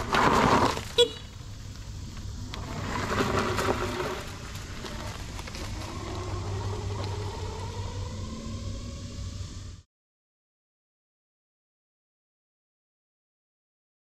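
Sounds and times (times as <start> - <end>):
electric motor whine: 0.0 - 9.9
low rumble: 1.3 - 9.9.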